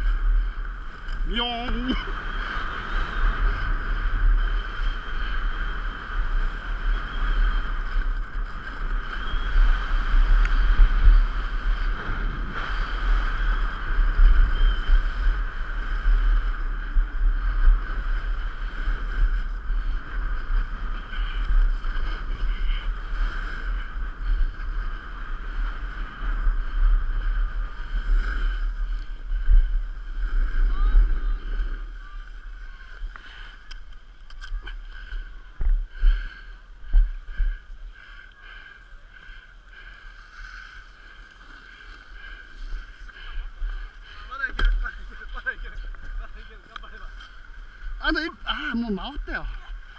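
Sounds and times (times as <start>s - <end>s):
skis sliding on snow: 0.0s - 33.7s, 34.6s - 49.9s
wind buffeting microphone: 0.0s - 49.9s.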